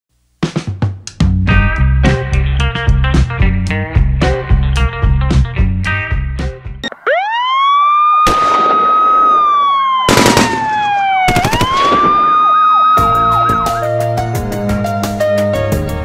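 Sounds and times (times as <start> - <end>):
rock guitar music: 1.2 - 6.9, 12.9 - 16.0
police siren wail: 6.9 - 14.2
rapid sharp cracks: 8.2 - 12.6.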